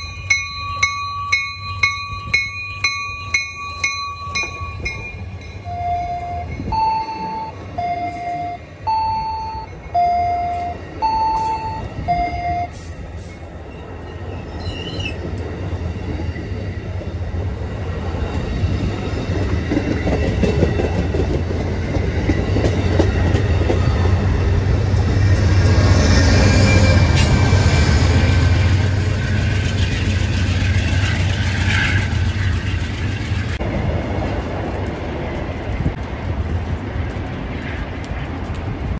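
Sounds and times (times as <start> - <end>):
diesel locomotive engine drone: 0.0 - 38.9
train wheel and rail noise: 0.0 - 38.9
two-note electronic beeping: 0.7 - 12.8
wheel squeal: 13.2 - 15.2.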